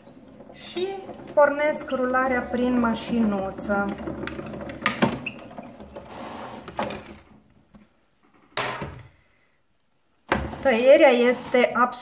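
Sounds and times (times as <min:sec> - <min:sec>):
grinding rumble of rollers: 0:00.0 - 0:07.3, 0:10.4 - 0:12.0.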